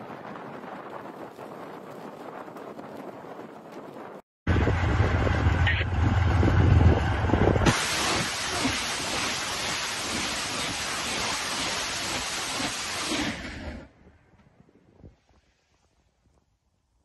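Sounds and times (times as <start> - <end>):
low rumble: 4.5 - 10.3
rockets launching with rushing hiss: 7.6 - 14.0.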